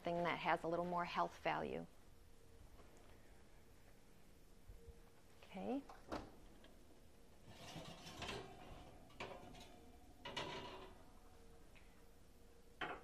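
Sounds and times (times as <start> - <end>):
metal pan scraping: 7.4 - 11.0.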